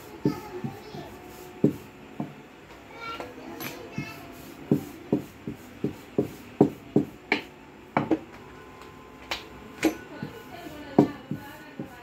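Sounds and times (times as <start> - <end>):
hands slapping dough: 4.6 - 12.0.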